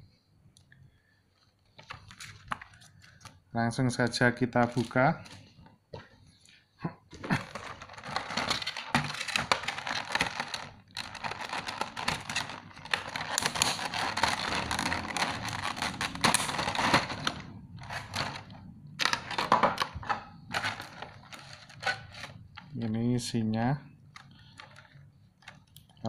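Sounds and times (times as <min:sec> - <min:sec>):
plastic packaging crinkling: 0:04.5 - 0:05.6, 0:07.2 - 0:22.5.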